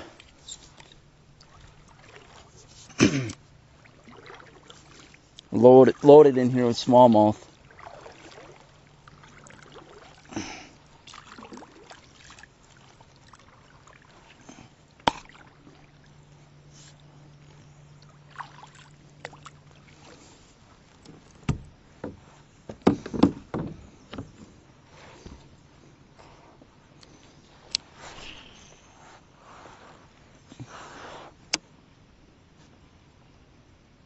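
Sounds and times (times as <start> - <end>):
paddle swishing through water: 0.0 - 31.6
paddle knocking on plastic kayak: 21.1 - 24.5.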